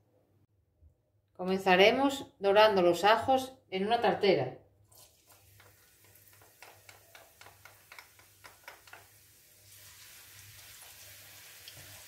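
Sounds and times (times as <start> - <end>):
garlic sizzling in oil: 4.9 - 12.0
wooden spatula tapping glass bowl: 5.6 - 9.1.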